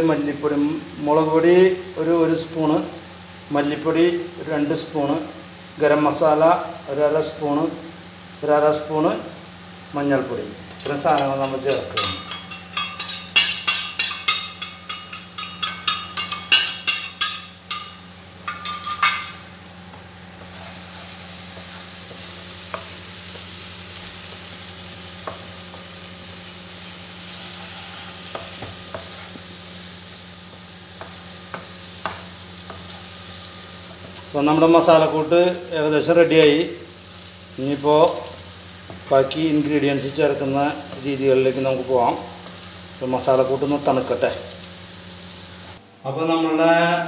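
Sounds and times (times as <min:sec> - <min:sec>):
frying sizzle: 0:00.0 - 0:45.8
spatula scraping pan: 0:20.4 - 0:24.2, 0:27.2 - 0:29.5.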